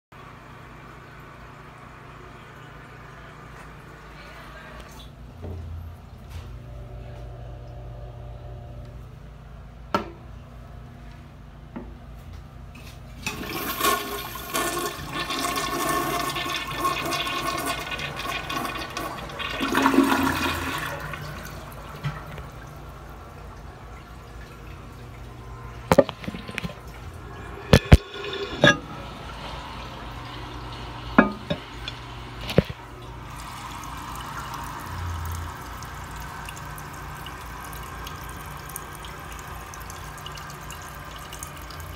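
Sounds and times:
toilet tank refilling hiss: 13.2 - 22.6, 25.8 - 41.9
toilet flushing: 13.2 - 41.9.

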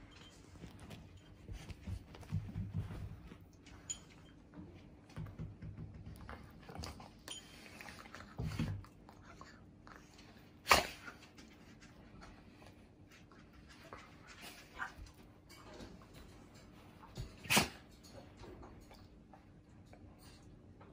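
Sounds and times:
bedding rustling: 0.0 - 4.4.

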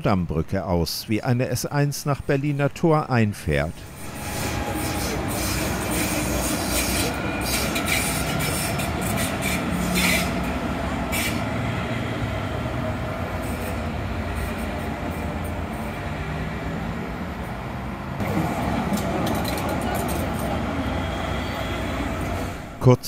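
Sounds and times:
train wheels rumbling on rails: 3.7 - 22.9
wheels clicking and squealing: 3.8 - 16.1, 18.2 - 22.8.

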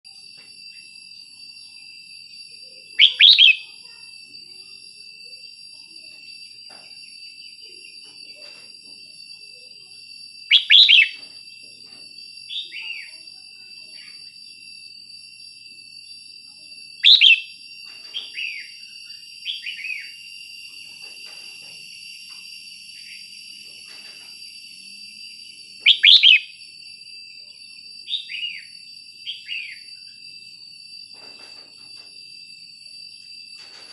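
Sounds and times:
faint steady high whine: 0.1 - 33.9
bird song warbled phrases: 3.0 - 3.7, 10.5 - 11.2, 17.0 - 17.5, 25.8 - 26.5.

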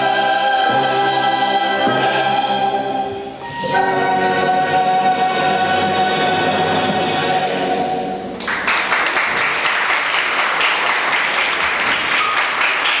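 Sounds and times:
choir with strings: 0.0 - 8.4
audience applause: 8.4 - 13.0.

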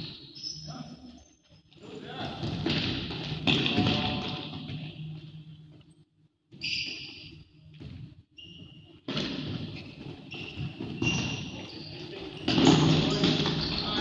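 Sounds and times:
shoe squeaks: 0.0 - 1.8, 6.5 - 14.0
ball kicked and bouncing on floor: 2.4 - 4.9, 7.8 - 11.7, 12.4 - 13.8.

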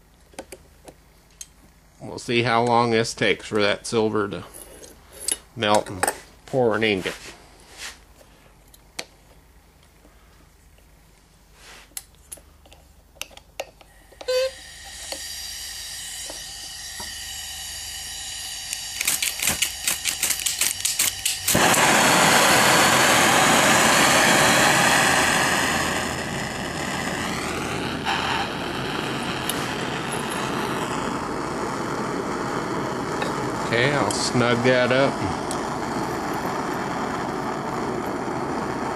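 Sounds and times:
gas hiss: 11.5 - 12.0, 13.8 - 38.9
torch flame roaring: 14.3 - 38.9
igniter clicks: 18.6 - 21.9.

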